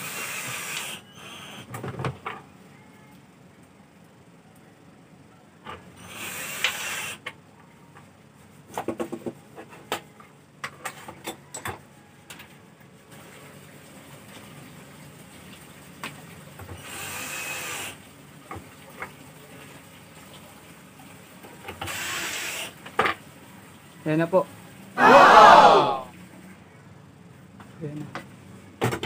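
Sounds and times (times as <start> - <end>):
cordless drill driving screw: 0.0 - 1.7, 6.0 - 7.2, 16.8 - 18.0, 21.8 - 22.7.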